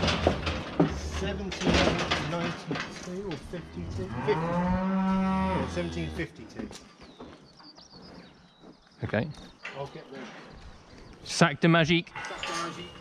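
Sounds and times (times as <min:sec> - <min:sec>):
cow mooing: 0:04.0 - 0:06.2.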